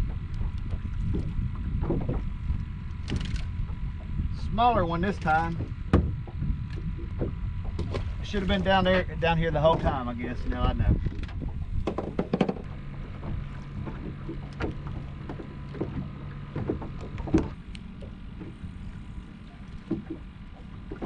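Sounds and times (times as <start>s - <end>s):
low steady hum: 0.0s - 21.0s
water slapping boat hull: 0.0s - 21.0s
fishing tackle knocks and clicks: 11.1s - 12.7s.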